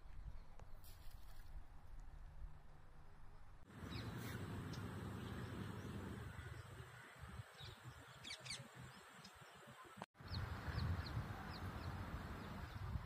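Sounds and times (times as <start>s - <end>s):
small birds chirping: 3.7s - 13.0s
wind rumble on microphone: 10.2s - 13.0s.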